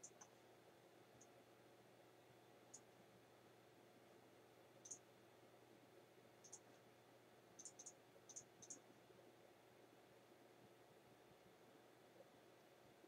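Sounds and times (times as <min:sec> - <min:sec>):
computer mouse clicking: 0:00.0 - 0:00.3, 0:06.4 - 0:06.8, 0:07.6 - 0:08.8
faint room hum: 0:00.0 - 0:13.0.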